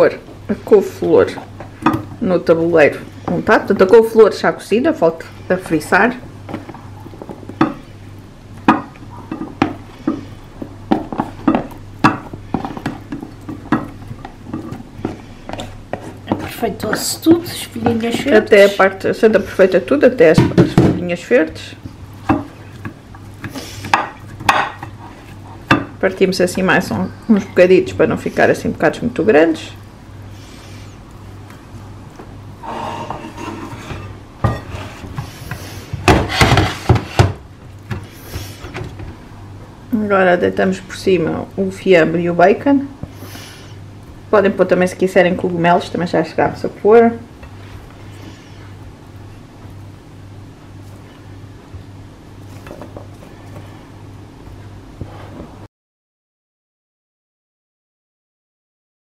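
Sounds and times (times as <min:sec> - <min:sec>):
low steady hum: 0:00.0 - 0:55.7
spatula scraping cauliflower in dish: 0:32.6 - 0:37.0.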